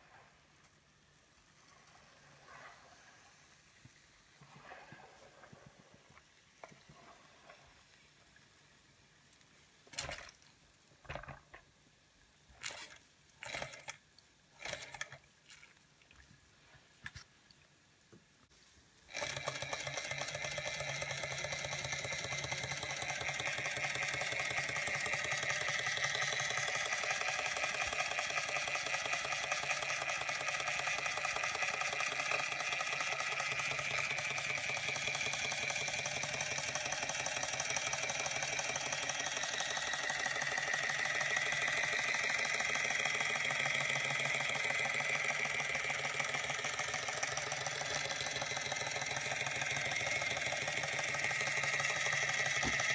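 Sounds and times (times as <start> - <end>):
toy steam engine clatter: 12.6 - 14.0, 14.6 - 15.2, 19.1 - 52.9.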